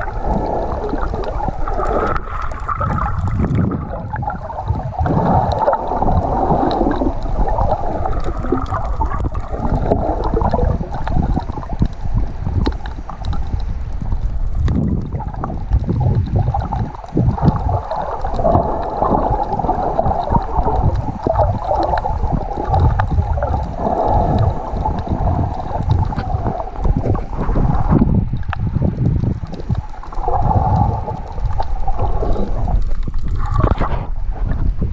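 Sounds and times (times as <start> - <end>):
muffled underwater water rushing: 0.0 - 34.9
small clicks: 10.3 - 14.8.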